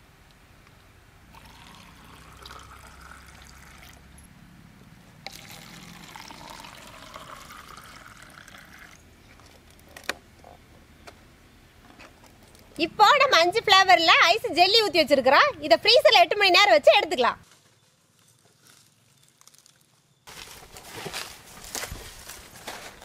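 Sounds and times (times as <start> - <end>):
liquid trickling into cups: 1.3 - 4.1, 5.2 - 9.8.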